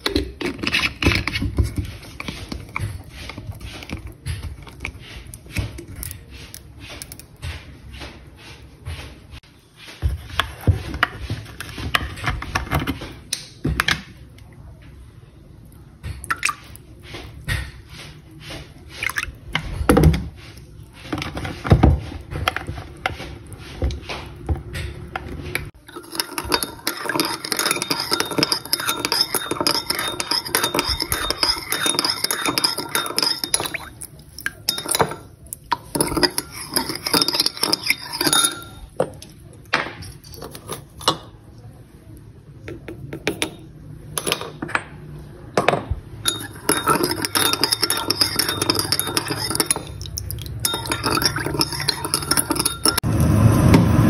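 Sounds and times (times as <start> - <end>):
metal spoon stirring in bowl: 0.0 - 7.4, 20.5 - 39.4, 40.0 - 41.3, 46.2 - 53.1.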